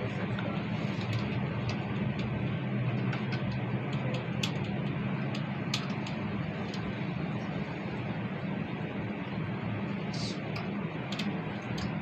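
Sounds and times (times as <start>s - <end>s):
bus cabin hum with road noise: 0.0s - 12.0s
light clicks and rattles: 0.2s - 6.9s, 10.5s - 12.0s.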